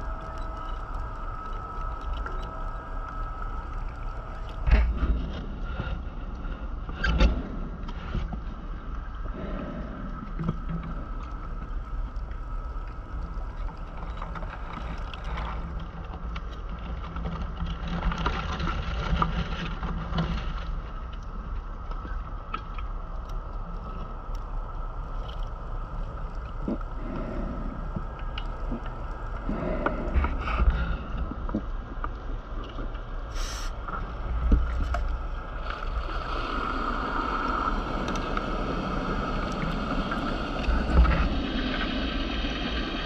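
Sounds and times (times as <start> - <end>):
low underwater rumble and hum: 0.0 - 43.0.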